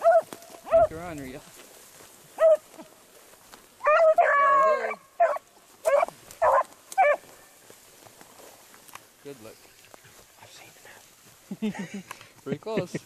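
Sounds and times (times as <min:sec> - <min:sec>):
hound baying: 0:00.0 - 0:01.0, 0:02.4 - 0:02.9, 0:03.8 - 0:07.4.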